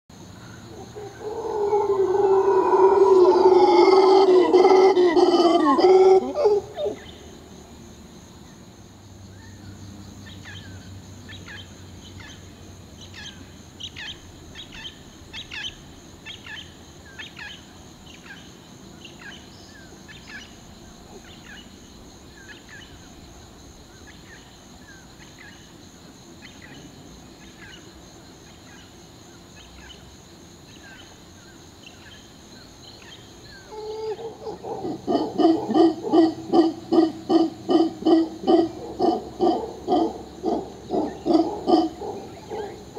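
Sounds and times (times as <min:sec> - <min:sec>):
howler monkey grunting howls: 0:00.7 - 0:07.1, 0:33.7 - 0:42.9.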